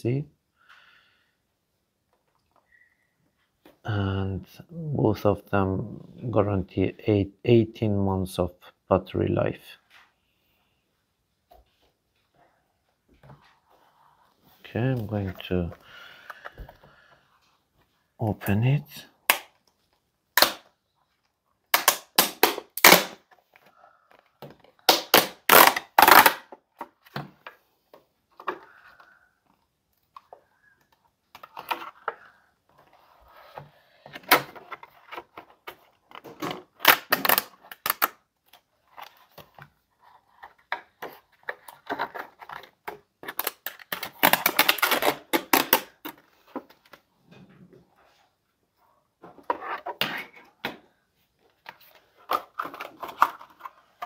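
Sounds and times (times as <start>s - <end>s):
plastic packaging snapping: 21.7s - 23.2s, 43.2s - 46.0s.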